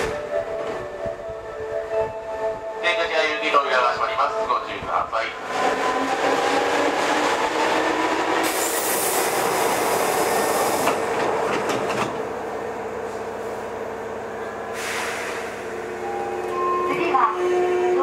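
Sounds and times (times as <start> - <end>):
train wheels on rail: 4.8 - 13.8, 14.4 - 17.5.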